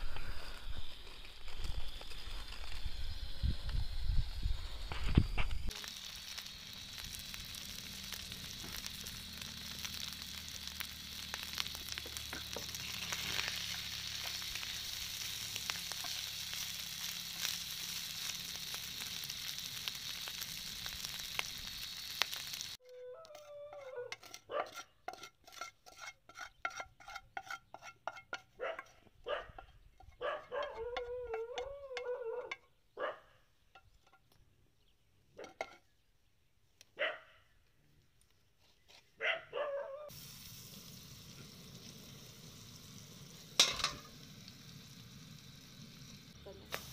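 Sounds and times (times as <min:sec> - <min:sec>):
food sizzling in a frying pan: 0:00.6 - 0:22.9, 0:40.1 - 0:46.9
wooden spatula stirring: 0:23.3 - 0:28.9.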